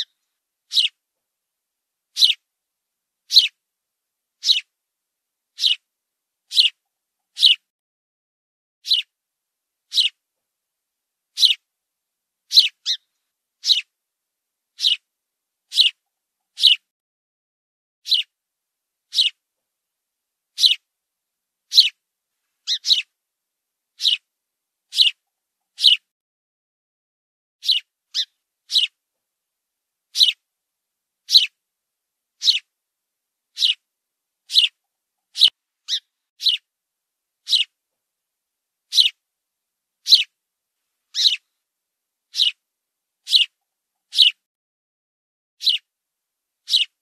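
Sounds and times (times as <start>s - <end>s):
sparrow chirping: 0.0s - 1.0s, 2.1s - 2.4s, 3.2s - 3.6s, 4.4s - 4.7s, 5.5s - 5.9s, 6.5s - 7.6s, 8.8s - 9.2s, 9.9s - 10.2s, 11.3s - 11.6s, 12.5s - 13.9s, 14.7s - 15.1s, 15.7s - 16.9s, 18.0s - 18.4s, 19.1s - 19.4s, 20.5s - 20.9s, 21.7s - 22.0s, 22.6s - 23.1s, 24.0s - 24.3s, 24.9s - 26.1s, 27.6s - 29.0s, 30.1s - 30.4s, 31.2s - 31.6s, 32.4s - 32.7s, 33.5s - 36.7s, 37.4s - 37.8s, 38.9s - 39.2s, 40.0s - 40.4s, 41.1s - 41.5s, 42.3s - 42.6s, 43.2s - 44.4s, 45.6s - 45.9s, 46.6s - 47.0s.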